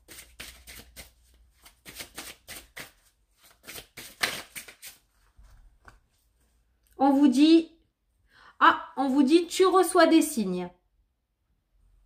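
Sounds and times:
cards being shuffled: 0.0 - 6.5.

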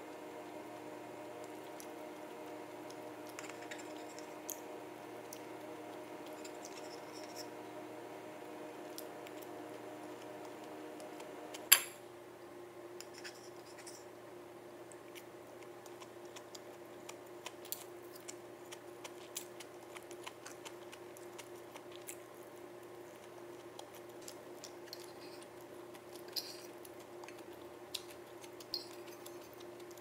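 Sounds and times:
low hum: 0.0 - 12.4.

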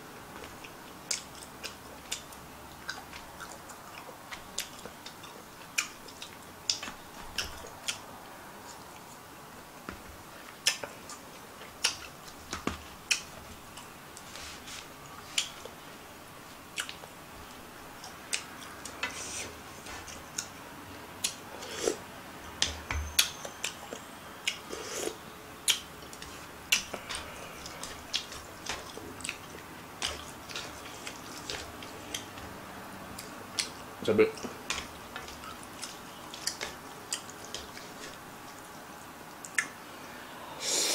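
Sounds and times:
person chewing and slurping: 23.6 - 38.2.

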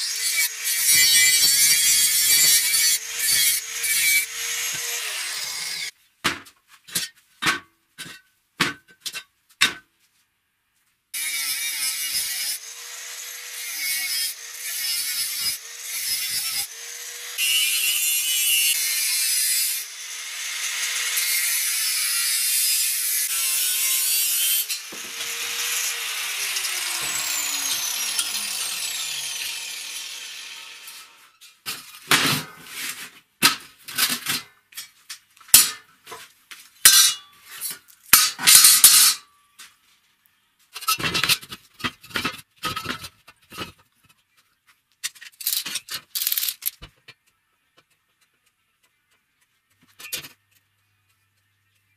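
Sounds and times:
power tool cutting metal pipe: 0.0 - 5.9, 11.2 - 31.4.

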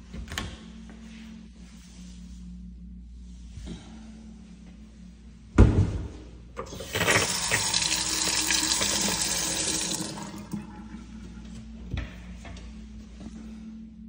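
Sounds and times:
faucet running into steel sink: 6.6 - 11.1.

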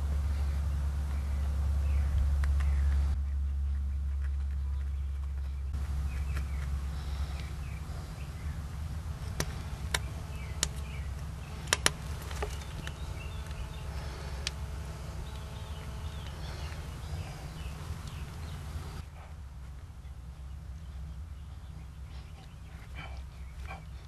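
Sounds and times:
steady low hum: 0.0 - 24.0
hand tools clicking and tapping: 11.6 - 13.6.

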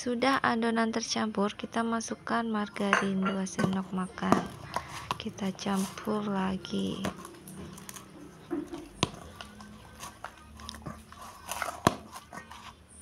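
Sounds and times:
hands kneading sticky dough: 3.5 - 13.0.

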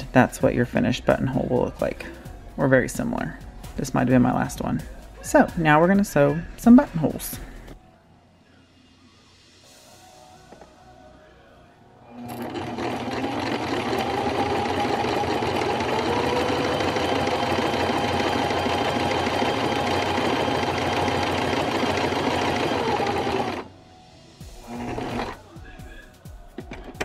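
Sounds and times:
sewing machine stitching: 12.1 - 23.7, 24.6 - 25.4.

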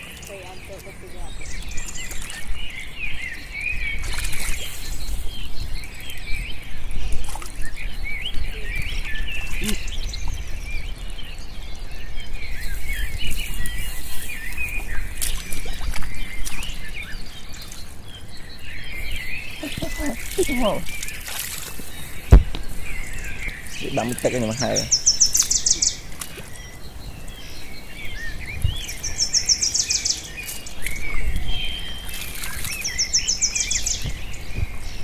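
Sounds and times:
small birds chirping: 0.0 - 35.0
hands splashing in water and mud: 4.0 - 5.1, 13.4 - 16.9, 19.6 - 22.7, 30.4 - 33.1.

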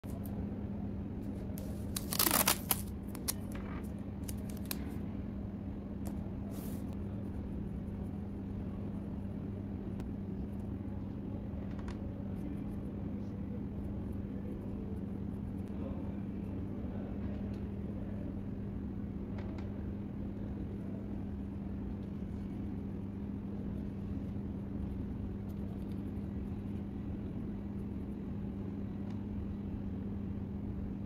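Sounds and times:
steady low hum: 0.0 - 31.0
paper crinkling and tearing: 1.6 - 3.6, 4.2 - 4.8.

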